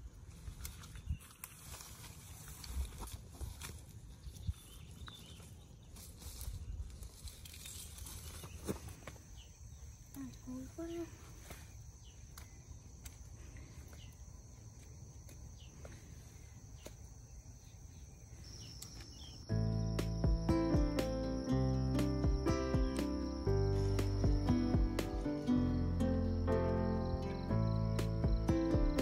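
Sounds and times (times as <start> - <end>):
footsteps in undergrowth: 0.0 - 9.5
high insect trill: 6.0 - 29.0
music: 19.5 - 29.0.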